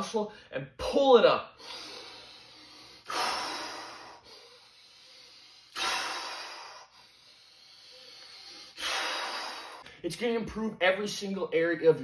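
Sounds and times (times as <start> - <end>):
man exhaling forcefully: 1.6 - 9.9
man inhaling: 1.6 - 10.0.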